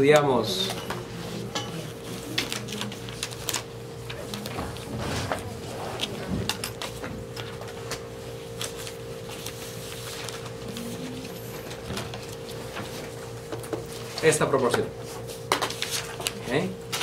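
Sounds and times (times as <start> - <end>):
electrical hum: 0.0 - 17.0.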